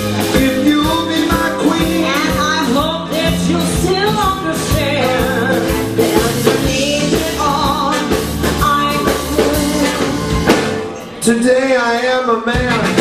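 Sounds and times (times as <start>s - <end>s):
rock and roll band: 0.0s - 13.0s
woman singing: 0.3s - 10.6s.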